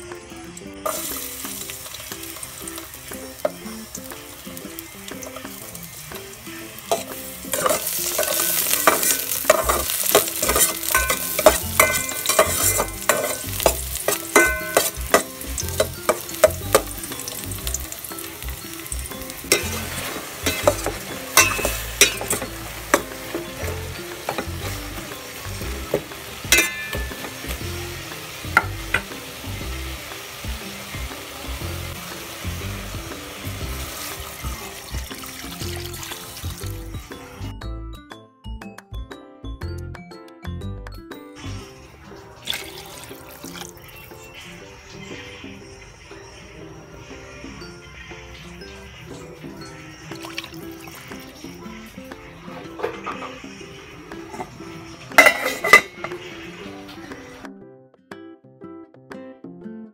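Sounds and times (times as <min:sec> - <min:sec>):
food sizzling in a pot: 0:00.0 - 0:37.5, 0:41.4 - 0:57.4
utensil clinking against pot: 0:06.9 - 0:17.4, 0:19.5 - 0:27.6, 0:55.2 - 0:56.2.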